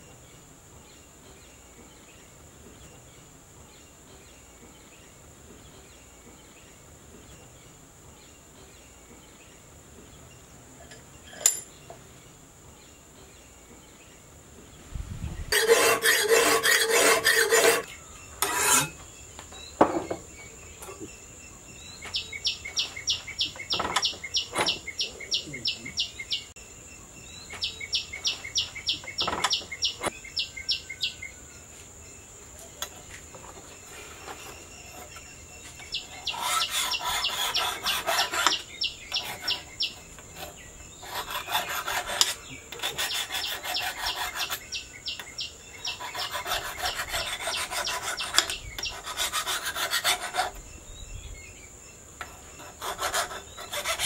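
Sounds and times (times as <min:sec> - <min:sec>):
file rasping on steel: 0:15.5 - 0:19.0, 0:34.2 - 0:44.8, 0:45.8 - 0:50.6, 0:52.2 - 0:54.0
steel squealing: 0:15.5 - 0:19.0, 0:35.8 - 0:44.7.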